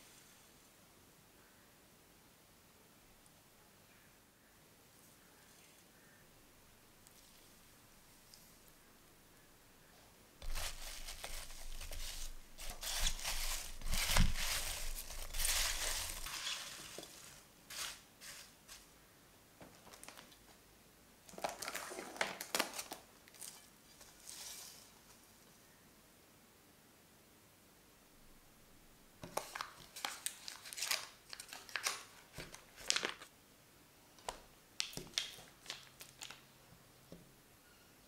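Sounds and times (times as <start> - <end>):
cling wrap crinkling: 10.4 - 18.9, 19.7 - 20.6, 21.3 - 25.2, 29.2 - 33.3, 34.8 - 36.5.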